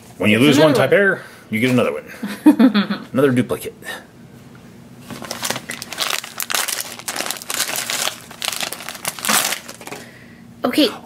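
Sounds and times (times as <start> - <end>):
foil bag crinkling: 5.0 - 10.1.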